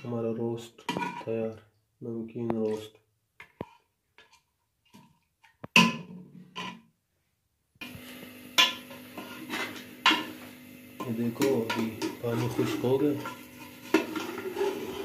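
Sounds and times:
cooking liquid hissing: 7.8 - 15.0.

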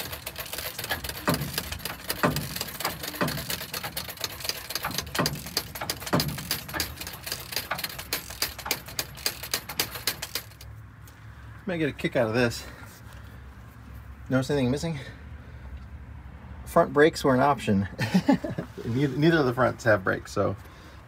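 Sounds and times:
engine turned over clicking: 0.0 - 10.7.

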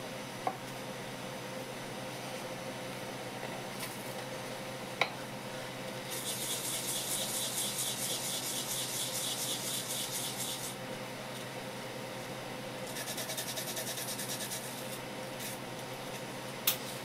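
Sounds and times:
root rasping on grater: 6.1 - 10.8, 12.9 - 14.8.

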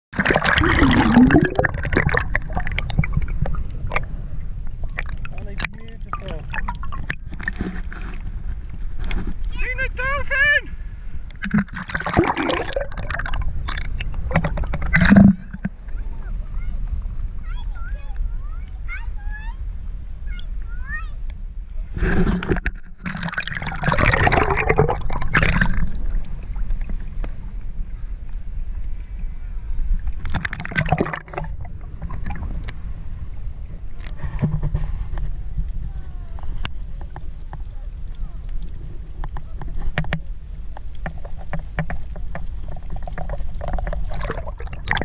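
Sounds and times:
sea water splashing: 0.1 - 19.8, 20.4 - 45.0
underwater clicks and pops: 11.3 - 15.7, 30.0 - 32.8, 38.4 - 45.0.

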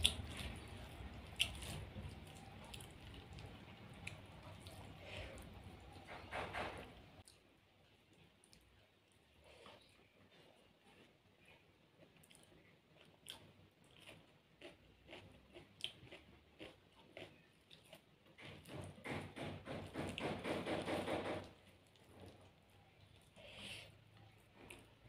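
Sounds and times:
soft chewing: 0.0 - 19.1, 21.4 - 25.0
fingers mixing food on a plate: 16.6 - 23.2.

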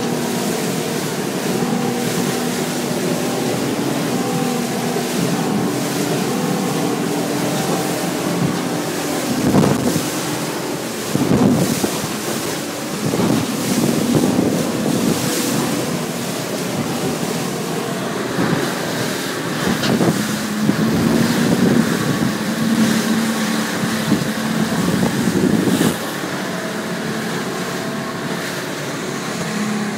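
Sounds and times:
wind buffeting microphone: 0.0 - 28.4
hull slamming into waves: 0.0 - 29.9
outboard motor running: 0.0 - 29.9.

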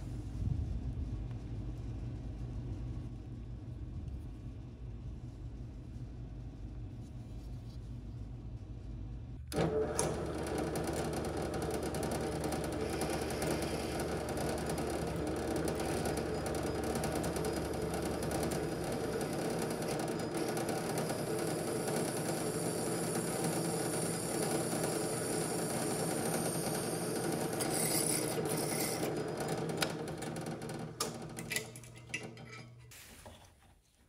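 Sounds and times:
drill press motor hum: 9.4 - 32.9
cutter milling metal: 9.5 - 32.8.

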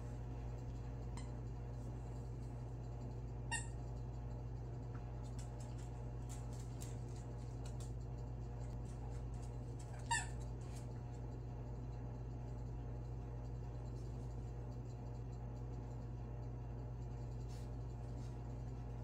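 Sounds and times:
low hum: 0.0 - 19.0
toy squeak: 3.5 - 3.8.

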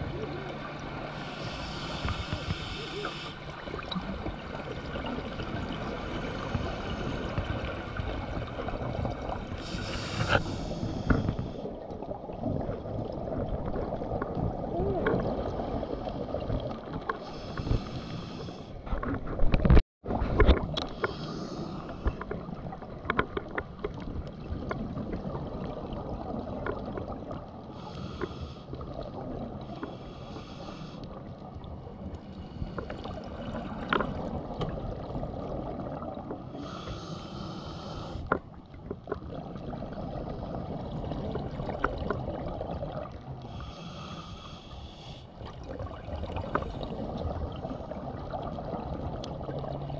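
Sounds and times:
breathing bubbles hissing: 1.0 - 4.4, 5.8 - 8.1, 9.0 - 12.2, 15.2 - 18.8, 20.9 - 22.2, 27.6 - 31.5, 32.2 - 38.3, 39.3 - 49.9.

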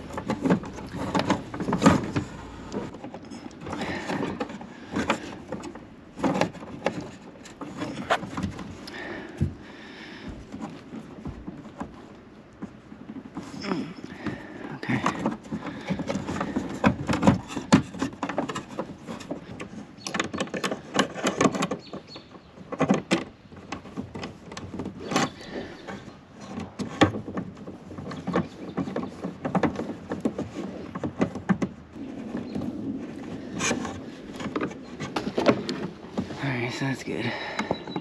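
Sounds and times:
tools and parts being handled: 0.0 - 9.6, 10.2 - 38.0.

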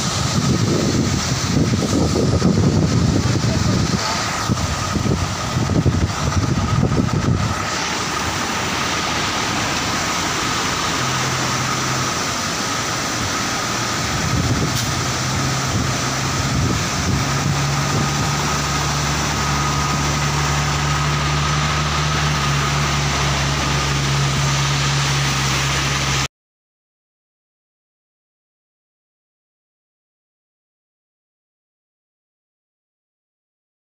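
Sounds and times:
truck diesel engine idling hum: 0.0 - 26.3
waterfall rushing: 0.0 - 26.3.

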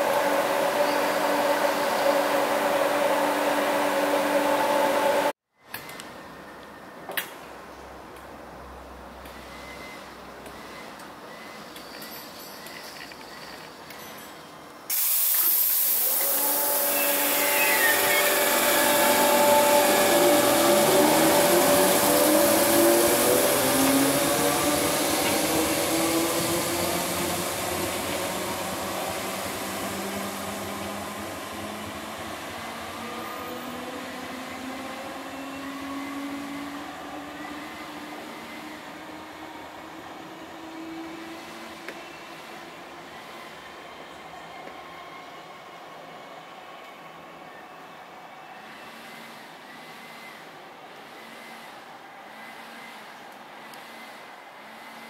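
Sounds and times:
electric train motors whining: 0.0 - 5.3, 15.2 - 41.2.

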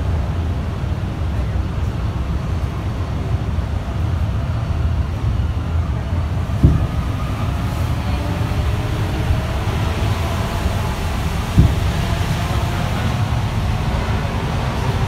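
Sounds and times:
metro car cabin rumble: 0.0 - 15.0
thump: 6.6 - 7.2, 11.5 - 12.4.

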